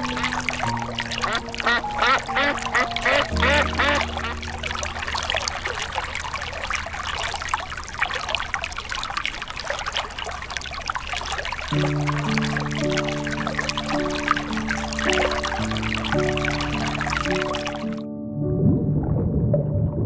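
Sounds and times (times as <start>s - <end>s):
sustained background music: 0.0s - 7.1s, 11.8s - 19.6s.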